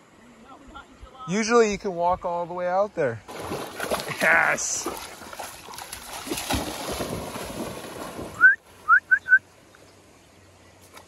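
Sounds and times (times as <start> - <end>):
water splashing and sloshing: 3.2 - 9.0.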